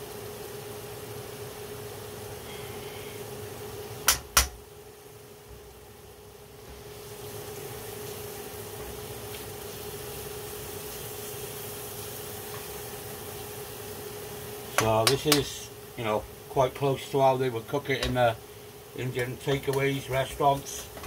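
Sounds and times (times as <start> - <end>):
sauce simmering: 4.9 - 21.0
steady hum: 9.8 - 21.0.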